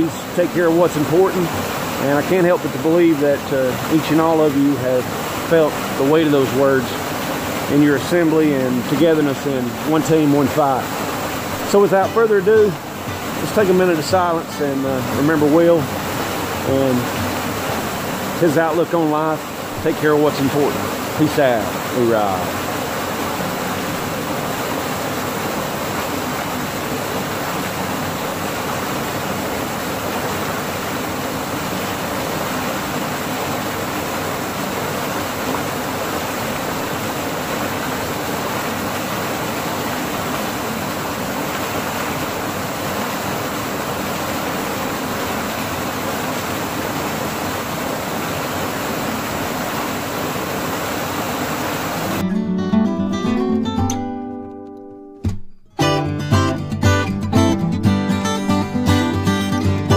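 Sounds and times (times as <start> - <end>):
strummed acoustic guitar music: 0.0 - 22.6, 52.2 - 59.9
waterfall rushing: 0.0 - 52.3.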